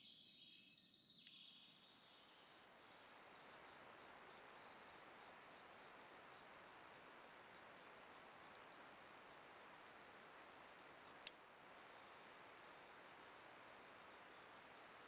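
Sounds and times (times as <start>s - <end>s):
faint hiss: 0.0s - 15.0s.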